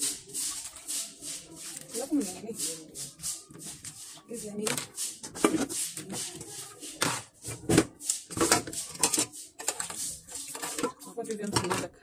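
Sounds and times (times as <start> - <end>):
household items clattering: 3.5 - 12.0.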